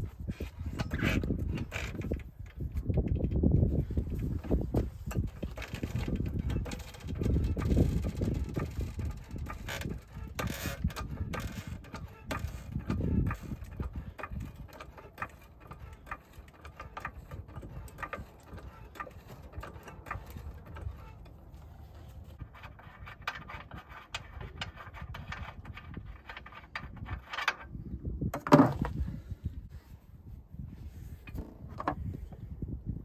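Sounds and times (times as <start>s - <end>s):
floor jack clicking and knocking: 4.1s - 21.2s.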